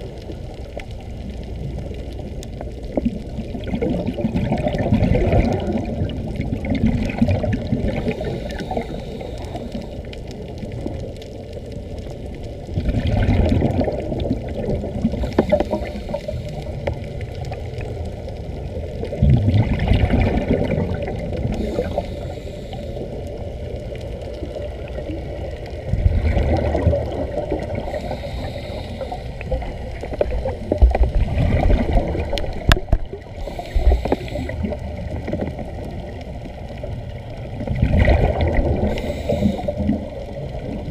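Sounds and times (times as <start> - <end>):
muffled underwater rumble: 0.0 - 40.9
bubbling bursts: 3.3 - 8.9, 12.8 - 16.4, 19.0 - 22.1, 25.8 - 28.5, 29.1 - 35.6, 37.6 - 40.9.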